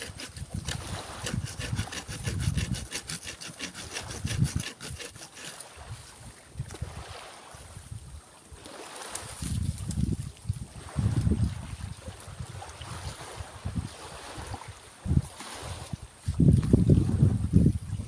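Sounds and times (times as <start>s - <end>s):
wind buffeting microphone: 0.0s - 3.2s, 4.0s - 5.0s, 9.2s - 18.0s
hand saw cutting wood: 0.0s - 5.8s.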